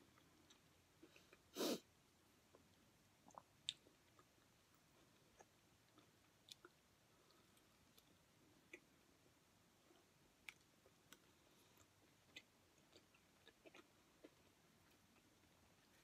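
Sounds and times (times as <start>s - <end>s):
chewing crispy sandwich: 10.0s - 16.0s.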